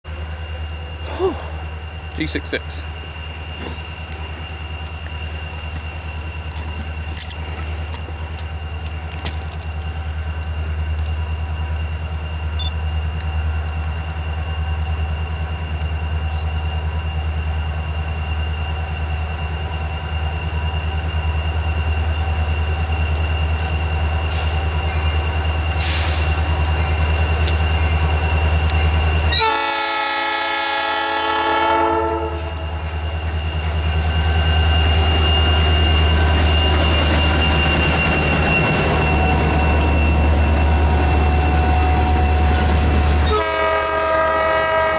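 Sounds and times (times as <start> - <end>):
diesel locomotive engine rumble: 0.0 - 44.9
train air horn blast: 29.3 - 32.7, 43.1 - 44.9.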